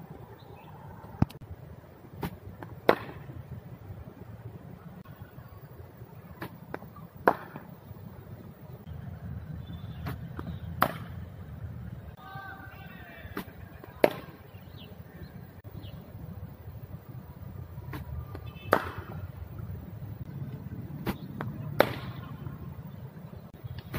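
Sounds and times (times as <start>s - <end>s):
steady low rumble: 0.0s - 12.2s, 14.5s - 23.9s
cricket ball cracking off bat: 2.2s - 3.4s, 6.3s - 7.7s, 10.0s - 11.2s, 13.3s - 14.4s, 17.9s - 19.3s, 21.0s - 22.5s.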